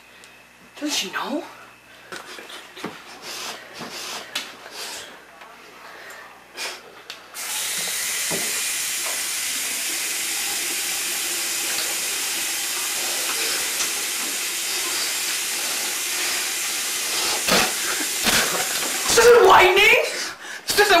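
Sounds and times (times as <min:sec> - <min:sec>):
tap running into sink: 0:07.7 - 0:15.5, 0:17.4 - 0:19.1.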